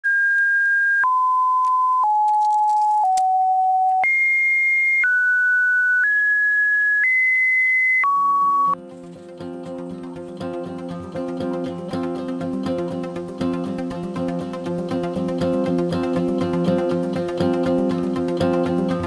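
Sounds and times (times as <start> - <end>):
electronic beep tones: 0.1 - 8.8.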